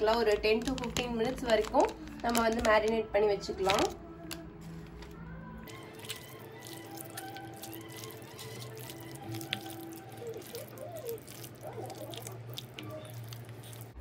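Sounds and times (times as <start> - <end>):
hands squishing chicken in paste: 5.7 - 14.0.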